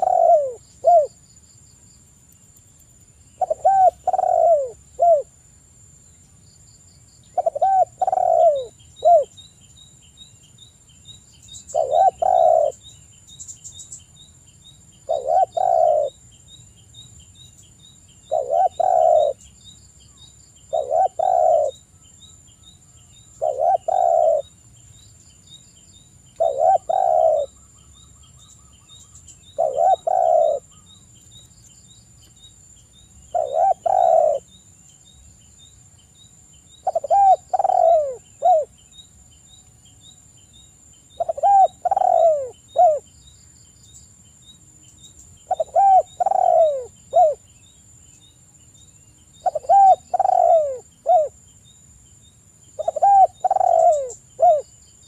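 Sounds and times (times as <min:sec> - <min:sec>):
dove cooing: 0:00.0 - 0:01.2, 0:03.4 - 0:05.3, 0:07.4 - 0:09.3, 0:11.7 - 0:12.8, 0:15.0 - 0:16.2, 0:18.3 - 0:19.4, 0:20.7 - 0:21.8, 0:23.4 - 0:24.5, 0:26.4 - 0:27.6, 0:29.4 - 0:30.8, 0:33.3 - 0:34.5, 0:36.8 - 0:38.7, 0:41.2 - 0:43.1, 0:45.5 - 0:47.4, 0:49.4 - 0:51.4, 0:52.8 - 0:54.7.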